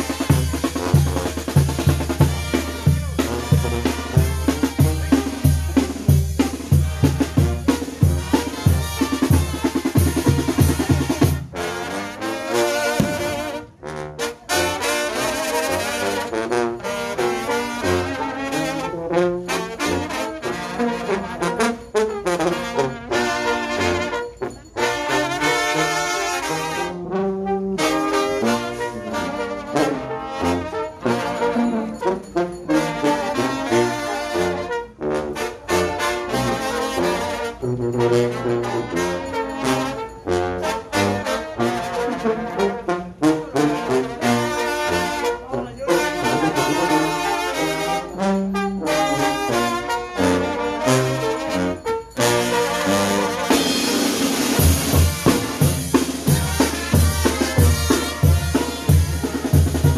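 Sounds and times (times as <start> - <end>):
drums: 0.0 - 11.6, 12.9 - 13.7, 53.2 - 59.9
trumpets and trombones melody: 0.0 - 59.9.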